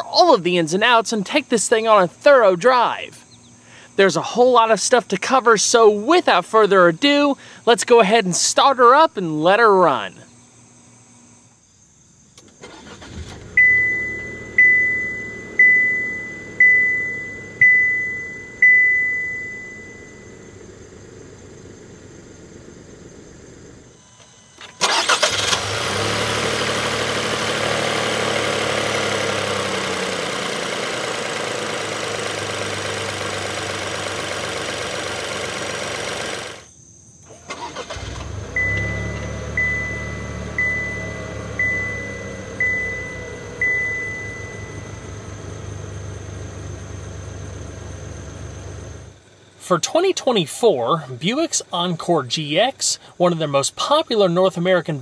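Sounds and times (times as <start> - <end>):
engine bay hiss: 3.2 - 4.0, 12.3 - 49.8, 50.9 - 53.3
car engine cranking and idling: 12.4 - 55.0
dashboard warning chime: 13.4 - 20.5, 37.8 - 45.4.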